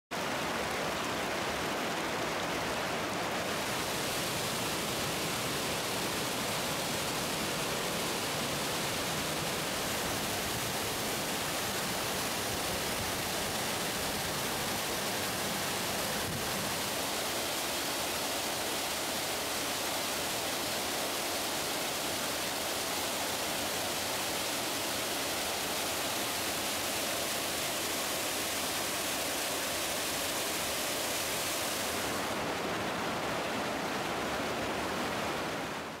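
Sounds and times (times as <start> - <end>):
waterfall rushing: 0.1 - 36.0.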